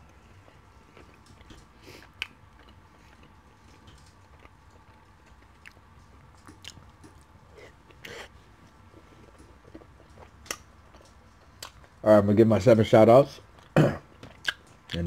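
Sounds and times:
person chewing: 0:00.1 - 0:11.9, 0:13.5 - 0:15.0
wet mouth clicks: 0:14.3 - 0:15.0.

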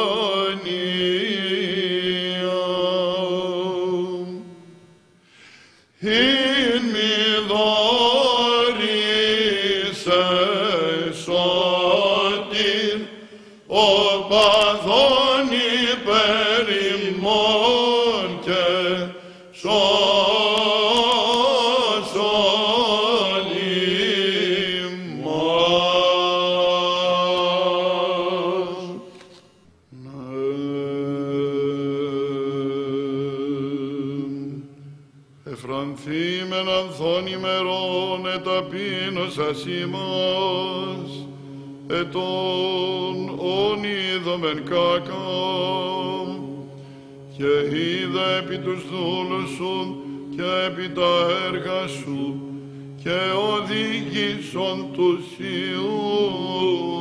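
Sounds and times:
low vocal drone: 0:06.0 - 0:29.2, 0:29.9 - 0:57.0
men chanting long held notes: 0:06.0 - 0:29.2, 0:35.4 - 0:57.0
men chanting a hymn over drone: 0:35.6 - 0:57.0.

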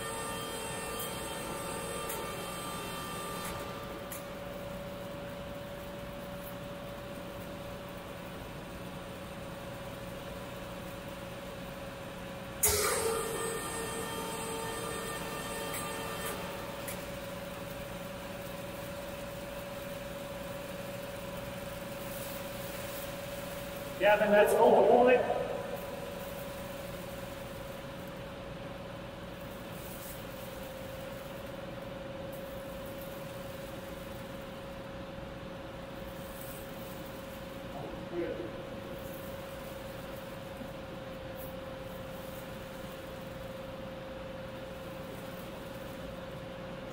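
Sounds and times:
machinery hum: 0:00.0 - 0:46.9
constant mid-pitched tone: 0:12.6 - 0:18.8
air noise: 0:24.0 - 0:27.0.

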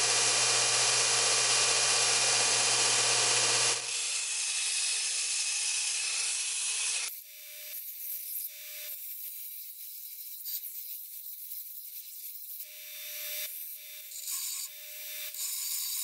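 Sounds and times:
belt sander motor hum: 0:00.0 - 0:07.1.

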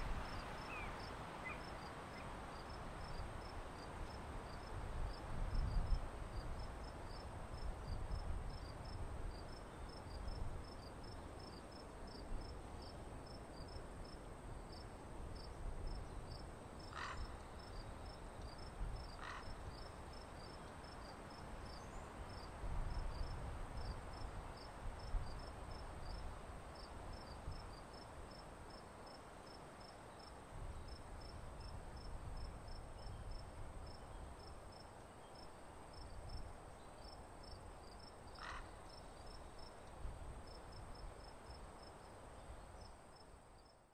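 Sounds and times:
cricket chirping: 0:00.2 - 0:22.5, 0:26.8 - 0:43.8.

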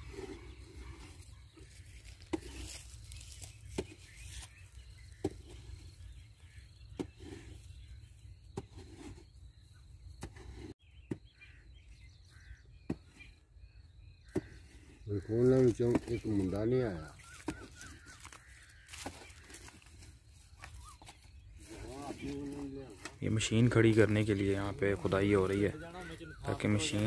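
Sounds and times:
soil scraping: 0:00.0 - 0:11.7, 0:14.3 - 0:27.0.

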